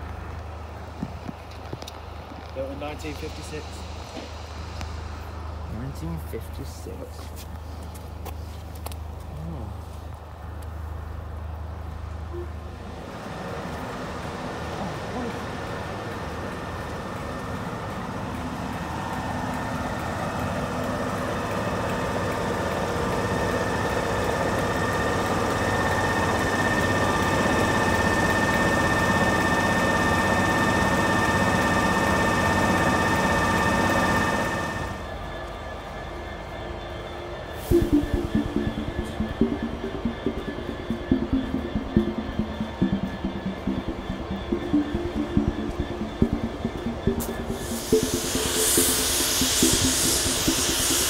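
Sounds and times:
diesel locomotive engine drone: 0.0 - 51.0
high whine: 18.8 - 51.0
steady low rumble: 37.7 - 51.0.

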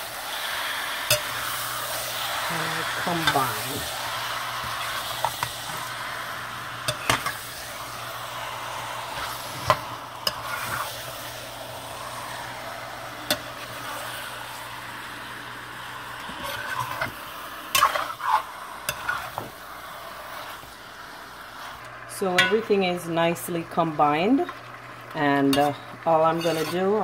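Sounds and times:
chicken sizzling in hot oil: 0.0 - 27.0
metal spoon scraping pot: 25.6 - 27.0.

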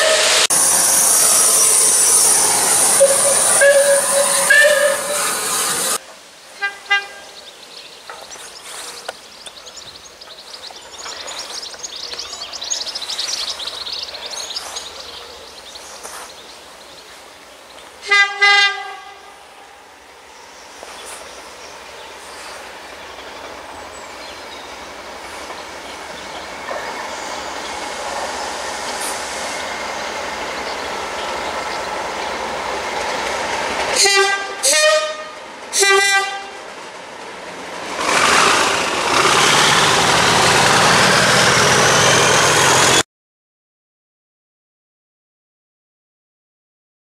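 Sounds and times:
two-tone locomotive horn: 0.0 - 0.5, 3.0 - 5.4, 6.6 - 7.4, 18.0 - 19.4, 34.0 - 36.7
train engine and wheel noise: 0.0 - 43.0.

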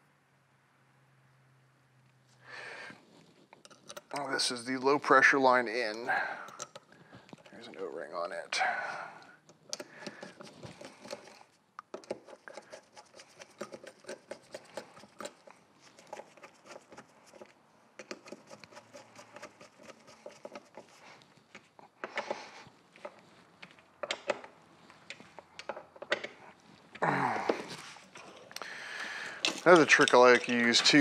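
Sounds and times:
rustling and scraping: 2.2 - 8.4, 9.5 - 31.0
metal parts clicking and tapping: 3.5 - 4.3, 5.2 - 7.6, 9.4 - 31.0.

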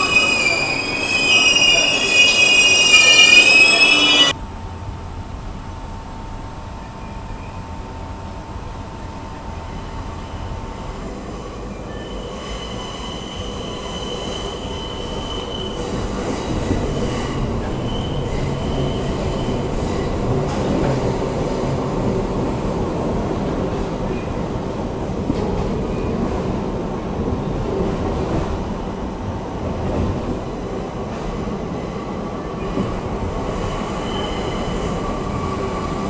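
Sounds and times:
steel wheels squealing: 0.0 - 4.4, 11.6 - 20.1, 33.6 - 36.0
subway train running: 0.0 - 36.0.

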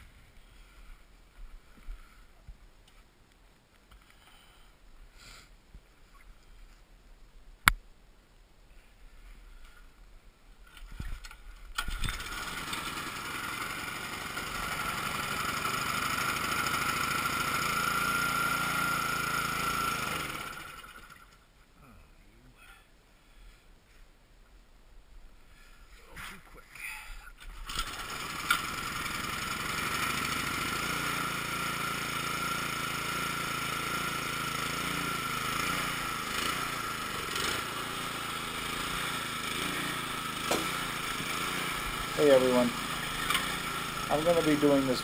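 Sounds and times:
engine: 10.7 - 21.5, 27.4 - 45.0.

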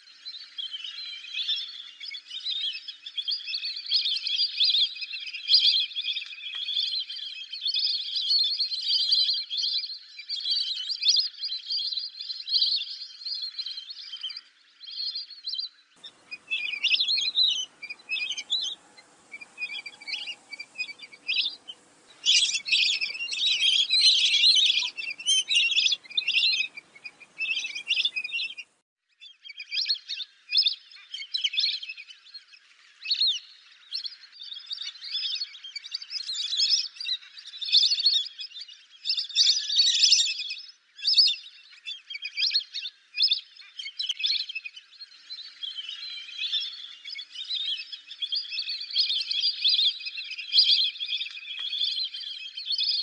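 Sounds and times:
ducks whistling calls: 16.0 - 28.8.

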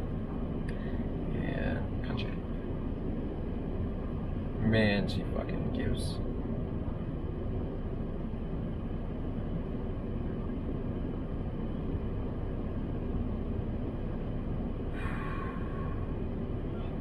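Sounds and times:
car cabin rumble and hiss: 0.0 - 17.0.

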